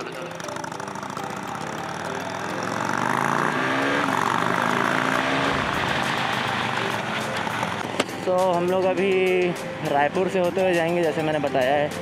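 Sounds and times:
motorcycle engine accelerating: 0:00.0 - 0:08.1.

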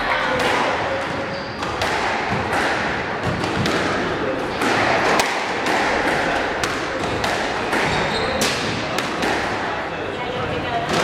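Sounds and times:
murmur of spectators: 0:00.0 - 0:11.0
squash ball knocks: 0:00.4 - 0:09.7.

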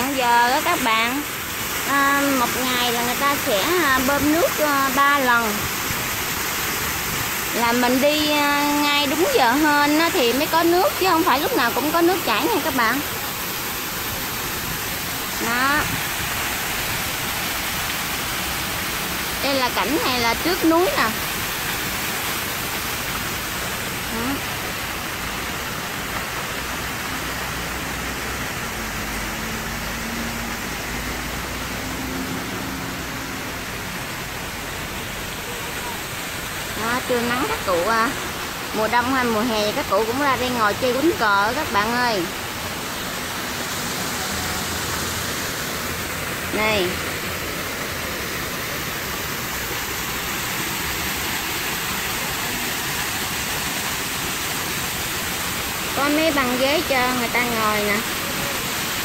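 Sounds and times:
waterfall rushing: 0:00.0 - 0:59.0
street traffic: 0:26.5 - 0:38.1, 0:39.6 - 0:52.7.

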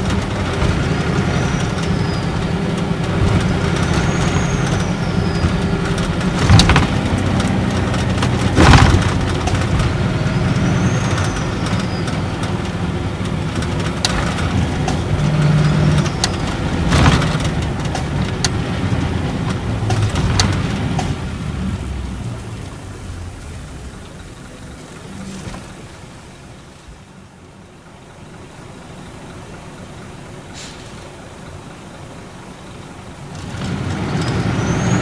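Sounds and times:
interior rattles and clicks: 0:00.0 - 0:26.4
coach diesel engine: 0:00.0 - 0:35.0
tyre and road noise: 0:00.0 - 0:35.0.

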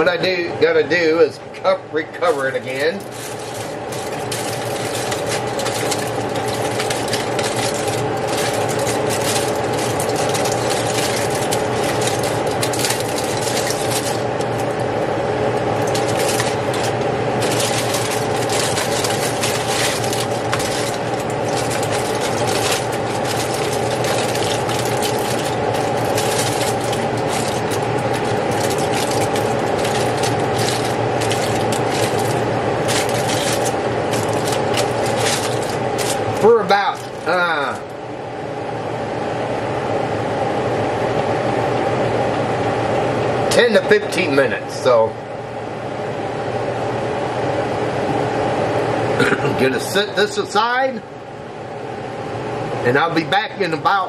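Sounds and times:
steady mechanical hum: 0:00.0 - 0:54.0
aluminium foil crinkling: 0:02.2 - 0:37.9.

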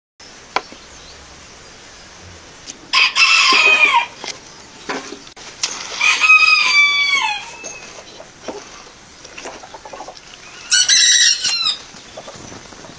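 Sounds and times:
rooster crowing: 0:02.9 - 0:04.2, 0:06.0 - 0:07.8, 0:10.6 - 0:11.8.

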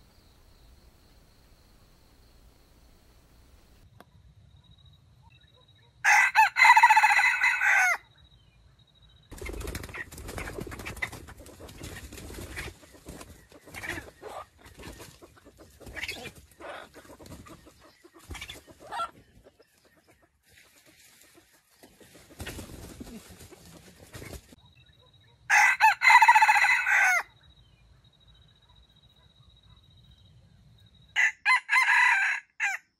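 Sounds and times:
rooster crowing: 0:06.0 - 0:08.0, 0:25.5 - 0:27.3, 0:31.2 - 0:32.9
chicken clucking: 0:09.4 - 0:25.4.

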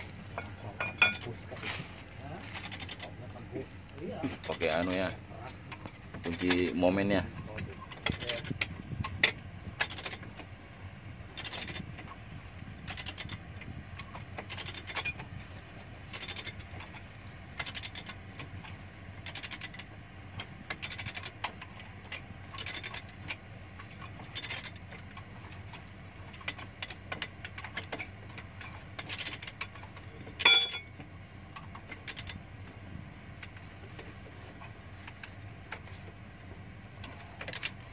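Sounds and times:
loud ringing metal clank: 0:30.4 - 0:30.9.

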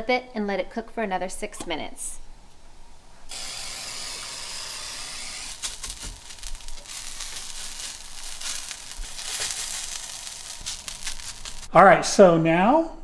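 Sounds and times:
potatoes sizzling in oil: 0:03.3 - 0:11.7.

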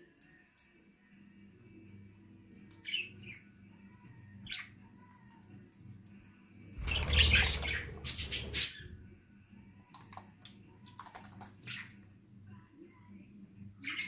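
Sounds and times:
bird wings fluttering: 0:06.8 - 0:08.6
parakeet chirps: 0:06.8 - 0:08.9.

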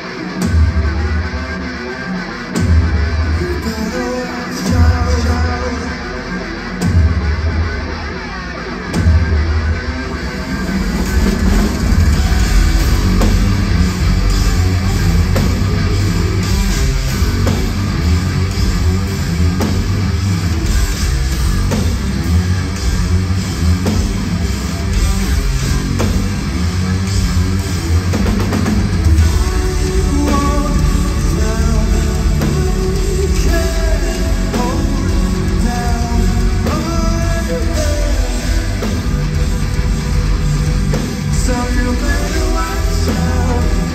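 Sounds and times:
bass guitar: 0:00.0 - 0:43.9
distorted guitar: 0:00.0 - 0:43.9
drum kit: 0:00.0 - 0:43.9
lead voice singing: 0:03.1 - 0:06.7, 0:29.0 - 0:39.4, 0:40.9 - 0:43.9.

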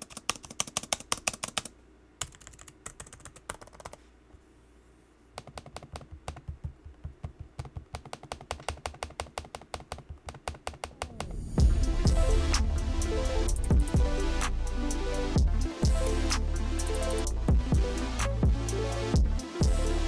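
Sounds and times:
laptop keyboard typing: 0:00.0 - 0:04.0, 0:05.4 - 0:11.2.

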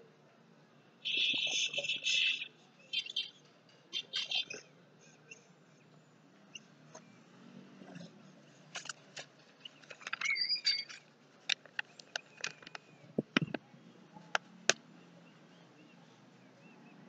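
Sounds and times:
short squeaky chirp: 0:10.1 - 0:11.0.

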